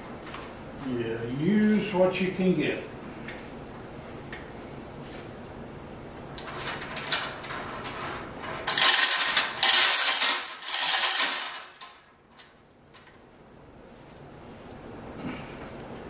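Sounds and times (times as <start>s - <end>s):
hoist clank: 6.4s - 12.0s
chain rattling through hoist: 6.4s - 12.1s.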